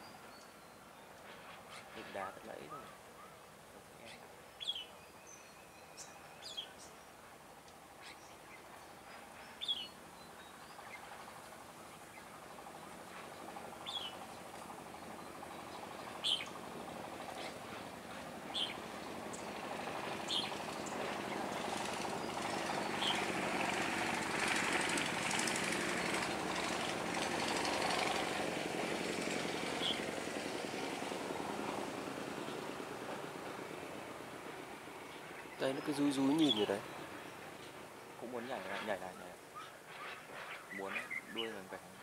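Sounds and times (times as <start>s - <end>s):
birds giving sharp calls: 13.6s - 28.3s, 29.6s - 30.1s, 35.1s - 37.6s, 38.2s - 42.0s.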